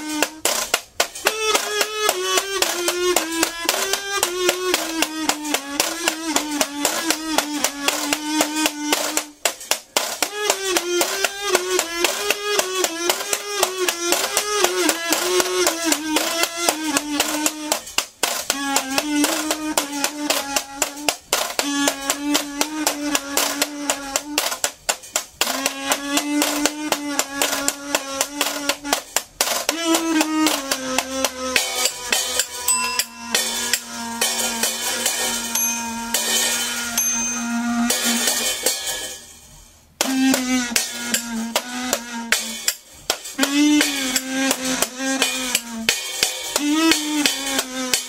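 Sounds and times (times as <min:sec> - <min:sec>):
washboard scrapes and taps: 0:00.0 - 0:32.7
kazoo buzzing: 0:00.0 - 0:38.6, 0:40.0 - 0:42.7, 0:43.3 - 0:48.0.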